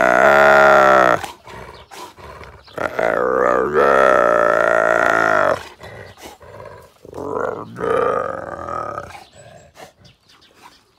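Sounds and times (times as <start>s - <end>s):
hyena calling: 0.0s - 2.0s, 2.6s - 6.2s.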